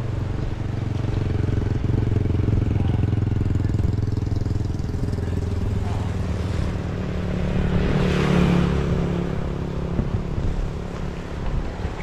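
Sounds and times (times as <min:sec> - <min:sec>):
vehicle engine passing: 0:00.0 - 0:12.0.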